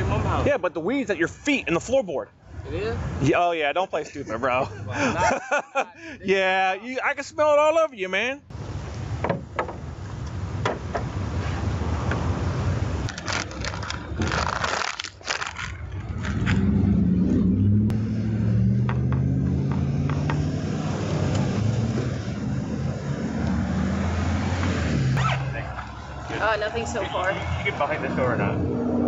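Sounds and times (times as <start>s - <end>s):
engine droning: 15.4s - 29.0s.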